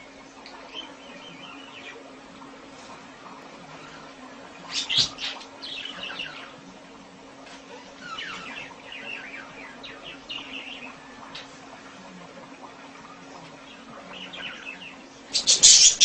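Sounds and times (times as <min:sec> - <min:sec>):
budgerigar chirping: 0:15.4 - 0:16.0.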